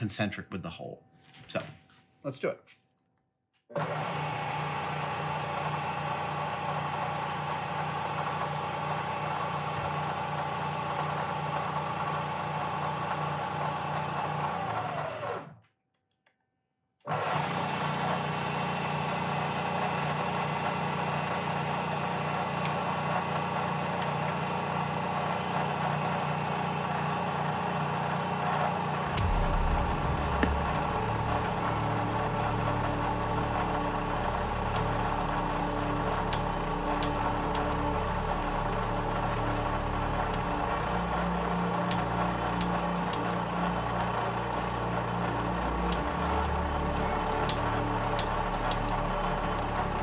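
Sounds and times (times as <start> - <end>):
milling machine spindle hum: 3.8 - 15.5, 17.1 - 50.0
deeper rumble: 29.0 - 34.8.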